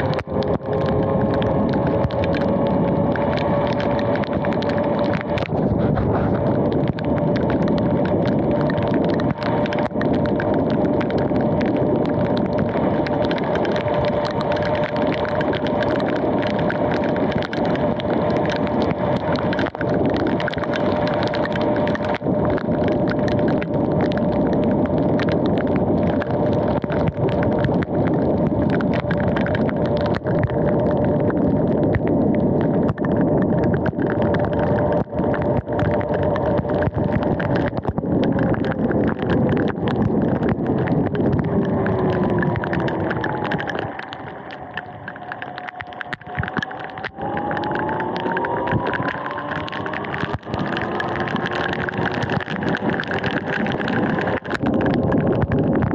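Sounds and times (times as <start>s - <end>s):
crackles: 0.0s - 55.9s.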